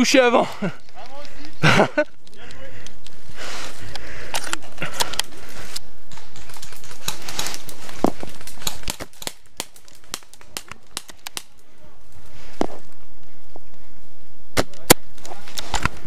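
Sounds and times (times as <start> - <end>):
dry leaves crackling: 5.3 - 12.9.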